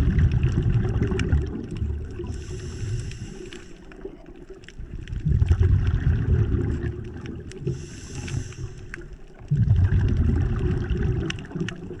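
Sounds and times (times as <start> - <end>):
exhaled bubbles rumbling: 0.0 - 12.0
faint clicks: 1.0 - 5.2, 7.0 - 9.6, 11.2 - 12.0
regulator inhale hiss: 2.2 - 4.0, 7.6 - 9.2.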